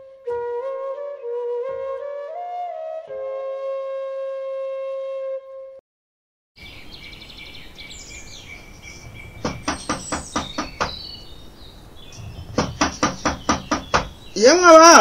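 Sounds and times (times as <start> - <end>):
birds chirping: 6.6 - 15.0
knocking on a door: 9.4 - 11.0, 12.2 - 14.2.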